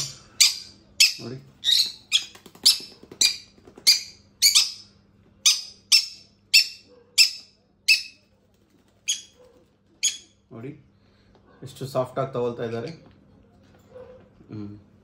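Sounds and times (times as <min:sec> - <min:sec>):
parrot chick begging calls: 0:00.0 - 0:04.8, 0:05.4 - 0:08.2, 0:10.0 - 0:10.3.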